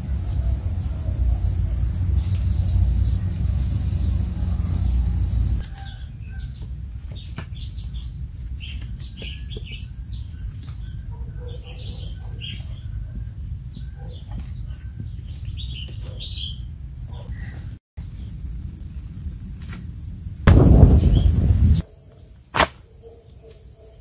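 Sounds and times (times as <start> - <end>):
steady low rumble: 0.0 - 5.6, 20.5 - 21.8
small birds chirping: 0.0 - 18.4, 19.4 - 22.4.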